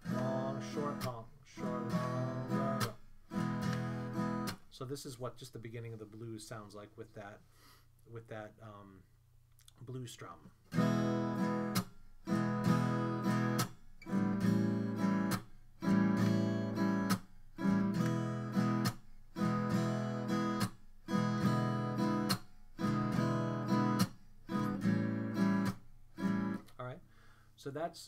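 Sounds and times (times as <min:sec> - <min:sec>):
acoustic guitar blues strumming: 0:00.0 - 0:04.7, 0:10.7 - 0:26.6.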